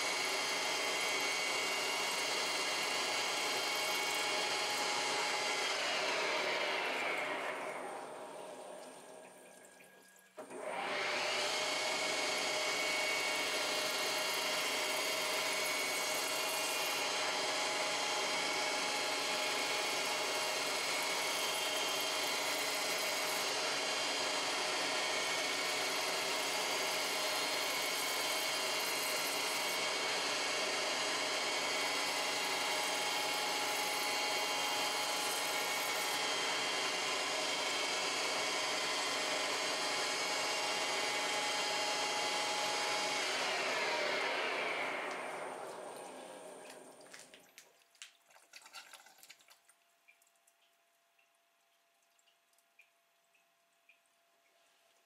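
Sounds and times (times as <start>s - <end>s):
lathe spindle and motor running: 0.0s - 8.8s, 10.4s - 47.0s
coolant splashing: 45.7s - 50.7s.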